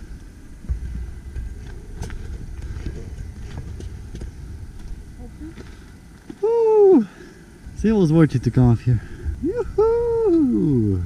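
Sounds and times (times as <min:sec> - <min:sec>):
wind rumble on microphone: 0:00.0 - 0:06.8, 0:07.5 - 0:11.0
footsteps on stony path: 0:00.1 - 0:06.4.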